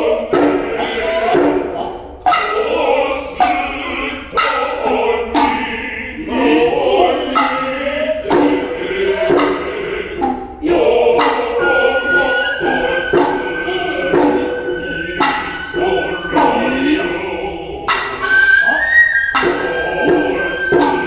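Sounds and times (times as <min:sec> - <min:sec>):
chorus chanting in unison: 0:00.0 - 0:21.0
sharp hand drum strikes: 0:08.3 - 0:10.6
high flute note: 0:11.2 - 0:16.7.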